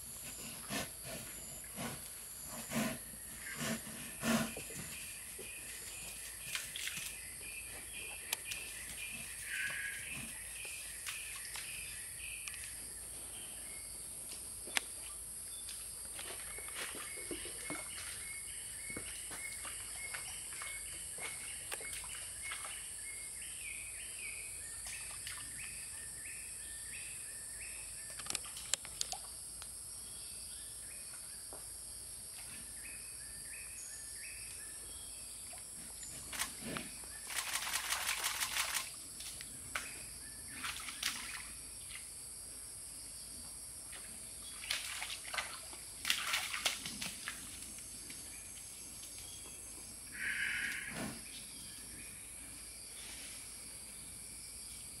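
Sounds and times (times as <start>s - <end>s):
wet splashing in mud: 44.6s - 47.4s.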